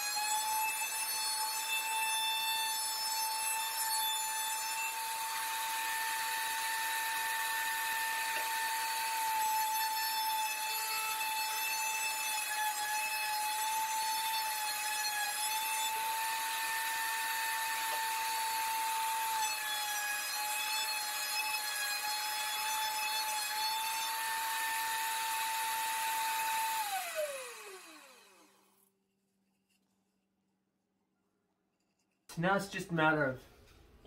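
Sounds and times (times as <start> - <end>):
router whining: 0.0 - 28.8
router spinning down: 4.7 - 11.4, 20.9 - 28.7.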